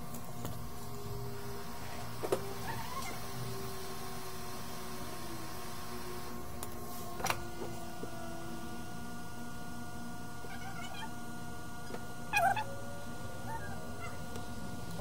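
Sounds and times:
equipment hum: 0:00.0 - 0:15.0
cat meowing: 0:10.4 - 0:11.2, 0:13.5 - 0:14.3.

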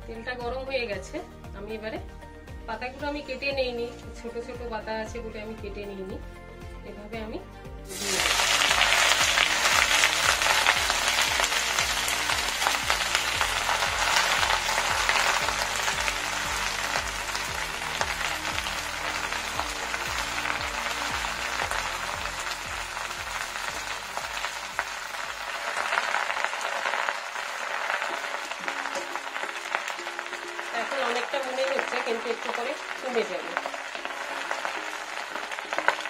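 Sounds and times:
leaves sizzling in hot oil: 0:07.9 - 0:36.0.

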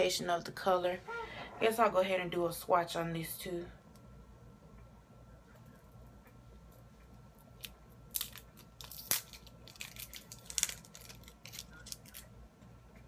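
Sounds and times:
packaging crackling and clicking: 0:07.6 - 0:12.3.

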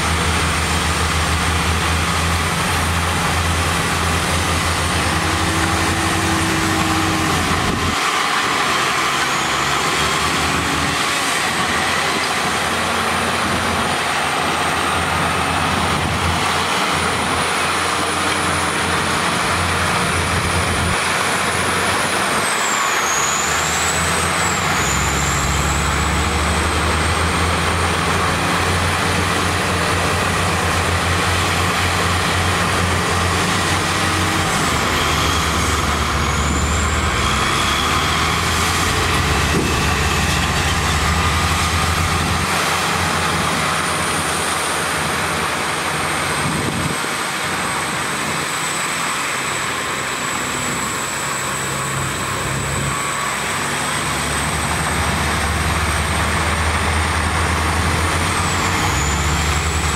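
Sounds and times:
bulldozer diesel engine: 0:00.0 - 0:59.9.

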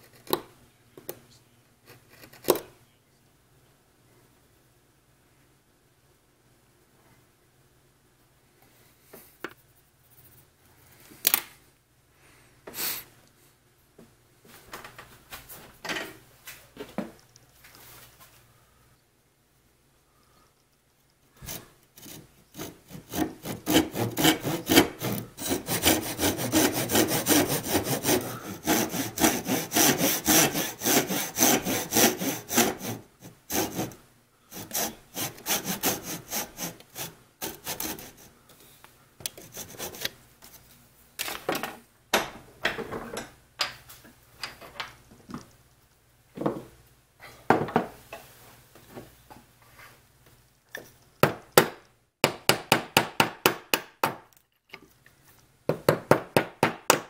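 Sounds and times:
hand saw cutting wood: 0:21.4 - 0:38.3, 0:39.4 - 0:40.1.

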